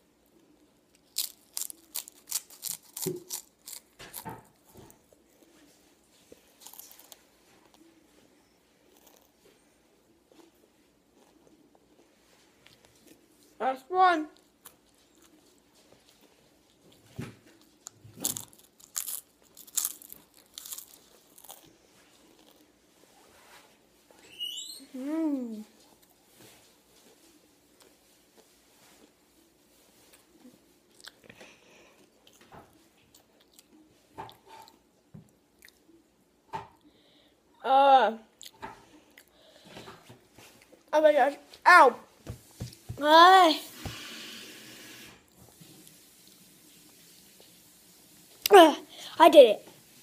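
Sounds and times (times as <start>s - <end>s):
crunching tortilla chip: 1.0s - 4.2s, 18.2s - 21.7s.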